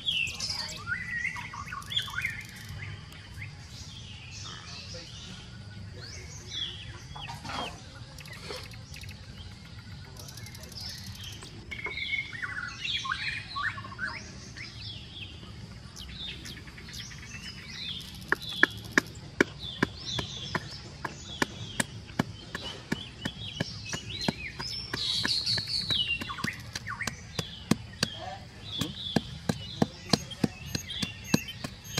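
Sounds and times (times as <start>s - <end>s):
small birds chirping: 0.0s - 31.9s
pestle pounding in mortar: 18.2s - 31.9s.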